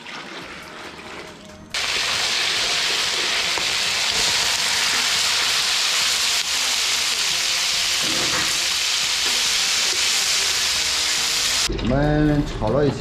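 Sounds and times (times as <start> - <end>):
meat sizzling in a wok: 1.7 - 11.7.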